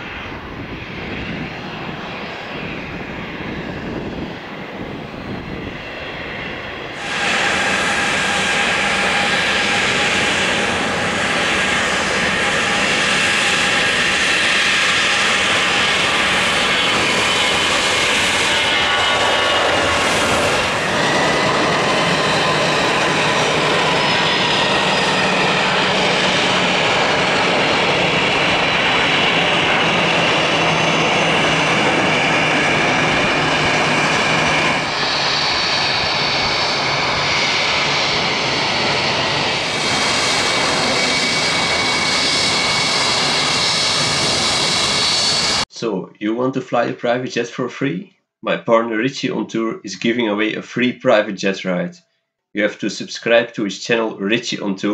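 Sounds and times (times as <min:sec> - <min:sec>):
jet engines roaring and whining: 0:00.0 - 0:46.0.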